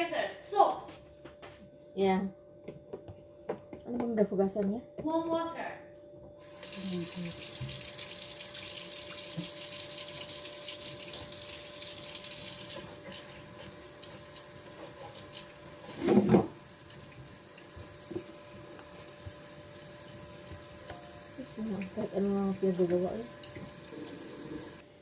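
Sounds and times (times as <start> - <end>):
water running from a tap: 6.4 - 24.8.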